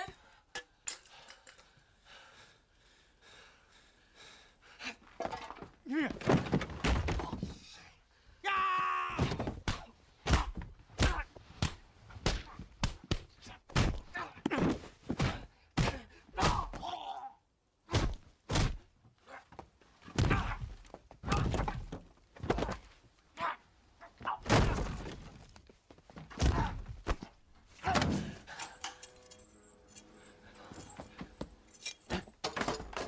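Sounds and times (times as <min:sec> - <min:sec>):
person yelling: 0:08.4 - 0:09.4
punches and body blows: 0:08.5 - 0:17.2, 0:17.8 - 0:22.9, 0:24.1 - 0:25.5, 0:26.2 - 0:28.4
thuds against furniture and walls: 0:09.2 - 0:11.2.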